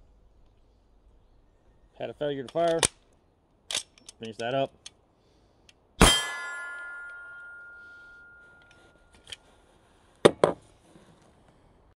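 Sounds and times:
metallic ring after gunshot: 6.0 - 8.7.

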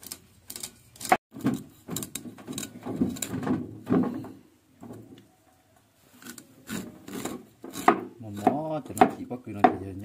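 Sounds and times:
cleaver scraping corn cob: 6.1 - 9.3.

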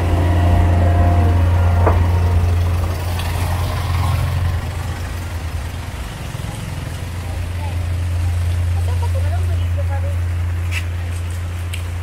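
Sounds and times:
truck engine running: 0.0 - 12.0
rain hissing on wet street: 2.5 - 12.0.

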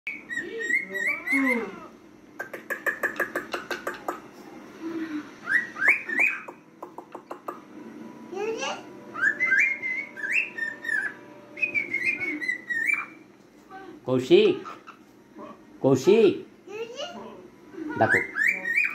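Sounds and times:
cockatiel whistling: 5.4 - 6.6, 9.1 - 13.2, 18.0 - 18.9.

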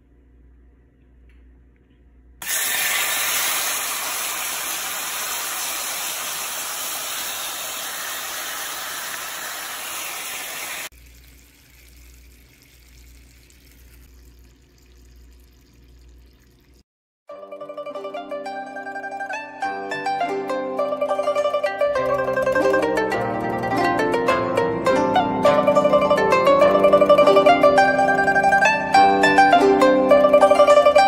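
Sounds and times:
faint hiss: 2.4 - 10.9
seafood sizzling on hot plate: 2.4 - 10.9.

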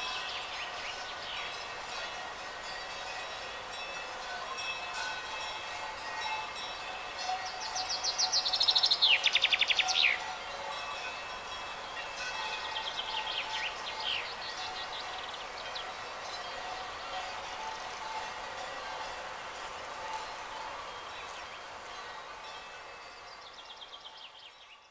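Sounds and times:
songbird trilling: 7.7 - 10.2.

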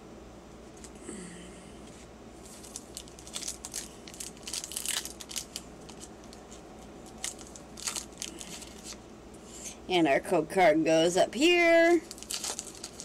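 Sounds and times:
foil wrapper crinkling and tearing: 2.4 - 9.0, 11.9 - 13.0.

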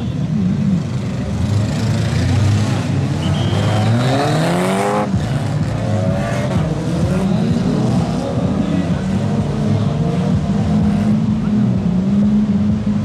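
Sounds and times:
car engines revving hard: 0.0 - 13.0.

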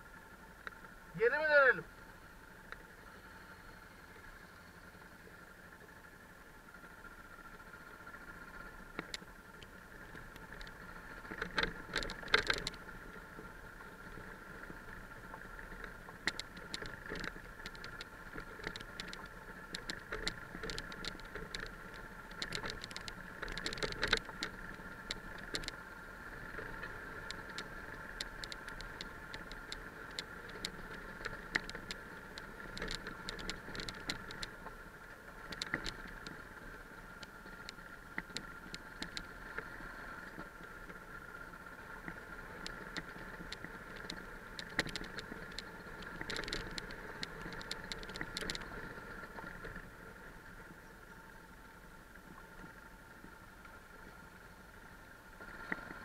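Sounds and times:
bike rattling over stones: 9.0 - 49.9.

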